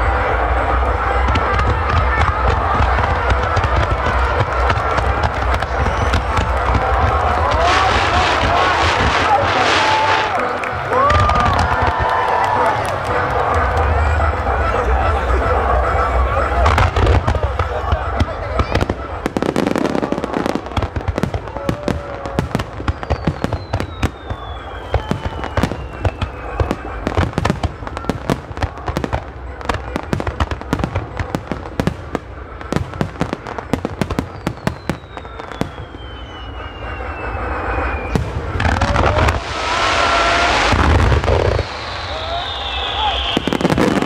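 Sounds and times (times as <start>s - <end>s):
fireworks bangs and crackles: 0.0s - 44.0s
falling firework whistles: 4.6s - 10.3s, 18.6s - 29.0s, 33.6s - 44.0s.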